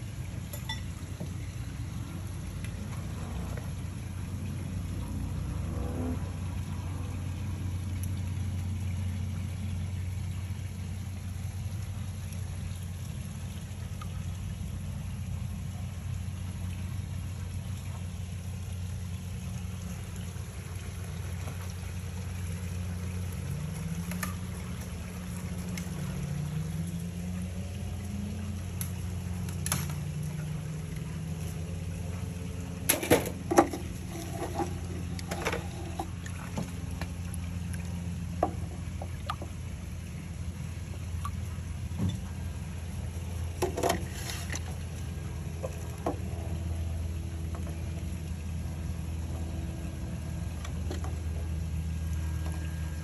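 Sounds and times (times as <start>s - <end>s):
low mechanical hum: 0.0s - 53.0s
faint wavering tone: 0.5s - 1.6s.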